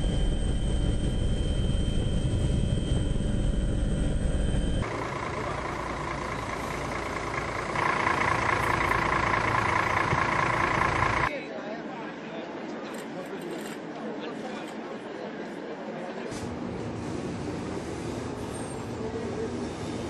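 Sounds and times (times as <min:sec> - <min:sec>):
aircraft engine drone: 0:00.0 - 0:11.3
bright steady noise: 0:00.0 - 0:11.3.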